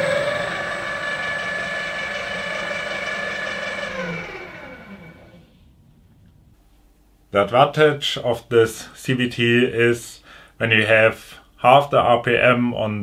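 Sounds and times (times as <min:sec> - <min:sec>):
drill press motor whining: 0:00.0 - 0:05.7.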